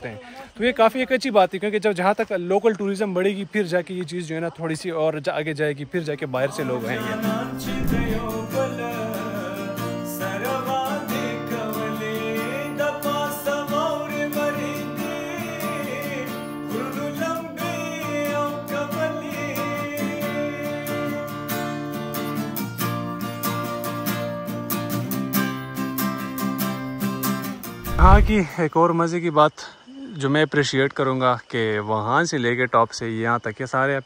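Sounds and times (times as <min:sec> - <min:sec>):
strummed acoustic guitar: 0:06.6 - 0:28.4.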